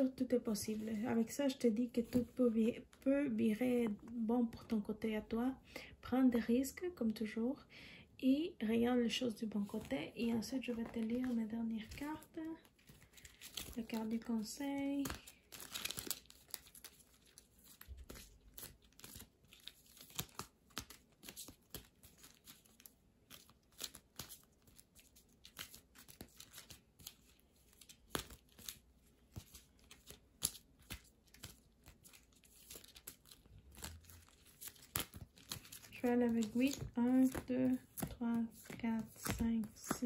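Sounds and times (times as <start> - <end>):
cards being shuffled: 9.6 - 40.0.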